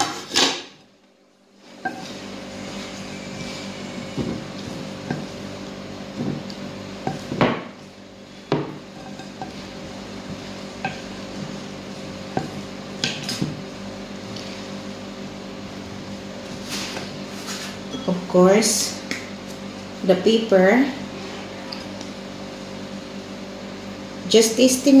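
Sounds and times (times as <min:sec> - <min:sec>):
steady low hum: 0:00.8 - 0:25.0
wooden spatula scraping glass bowl: 0:01.8 - 0:05.5.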